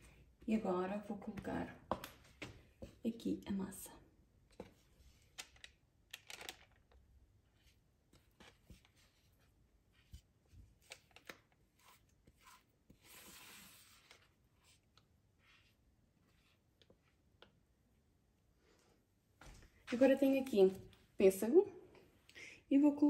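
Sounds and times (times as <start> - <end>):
batter scraped from a bowl: 11.8 - 14.8.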